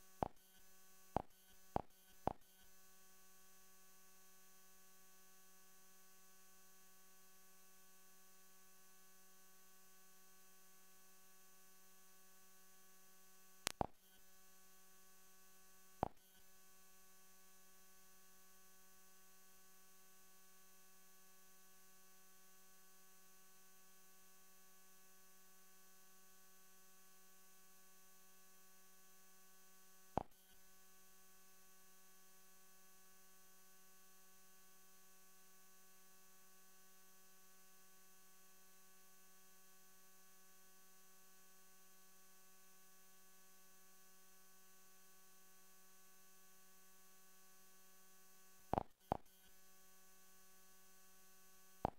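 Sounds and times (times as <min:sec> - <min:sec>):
sharp clicks: 0:13.7 - 0:13.9.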